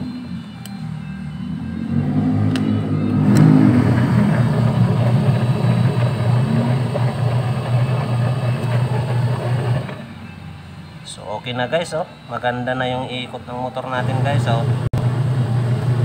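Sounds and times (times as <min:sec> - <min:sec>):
washing machine motor humming: 0:02.0 - 0:10.1, 0:14.0 - 0:16.0.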